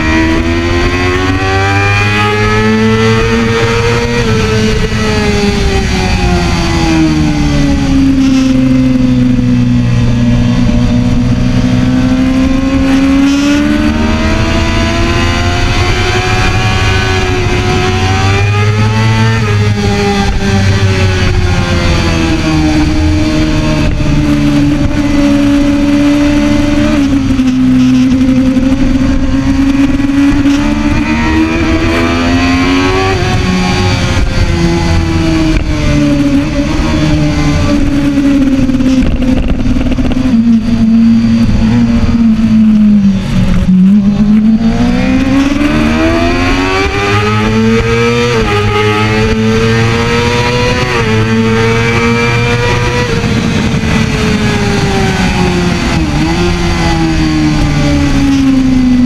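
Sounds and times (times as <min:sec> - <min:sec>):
motorcycle engine revving high: 0:00.0 - 0:59.0.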